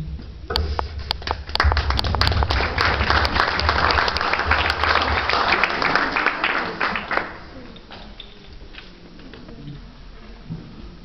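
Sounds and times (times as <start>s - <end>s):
audience applause: 1.2s - 7.7s.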